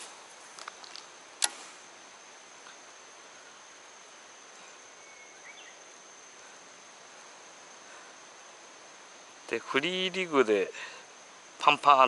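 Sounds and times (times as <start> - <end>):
outdoor ambient hiss: 0.0 - 12.0
sharp click: 0.6 - 1.7.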